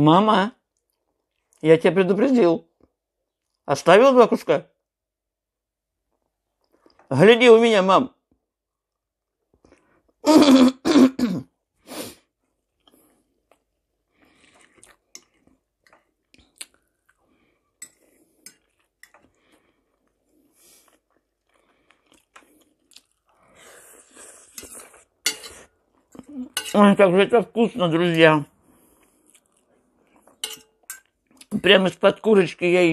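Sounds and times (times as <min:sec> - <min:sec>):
person clearing throat: 0:10.3 - 0:11.5
chewing: 0:12.4 - 0:26.7, 0:28.8 - 0:31.5.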